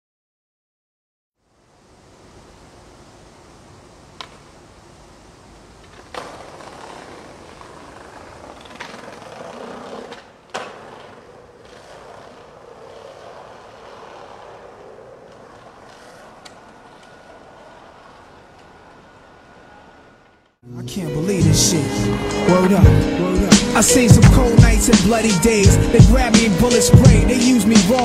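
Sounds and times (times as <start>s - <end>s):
skateboard wheels rolling on pavement: 1.4s - 20.6s, 21.3s - 28.0s
skateboard clacks: 4.2s - 4.5s, 5.8s - 20.5s, 26.1s - 28.0s.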